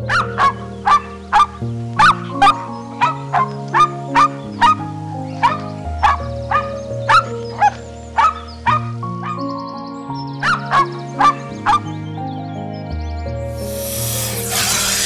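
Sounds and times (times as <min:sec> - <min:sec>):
background music with held notes: 0:00.0 - 0:15.0
dog barking: 0:00.1 - 0:02.2, 0:05.4 - 0:09.4.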